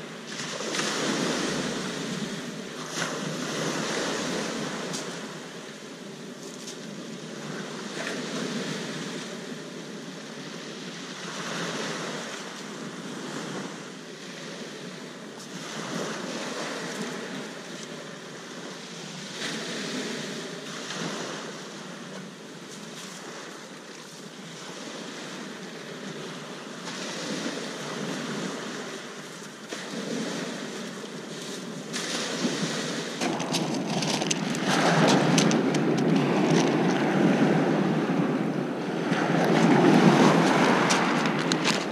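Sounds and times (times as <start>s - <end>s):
wind on microphone: 0.0s - 23.5s, 24.3s - 41.9s
surf breaking on shingle: 33.2s - 37.0s.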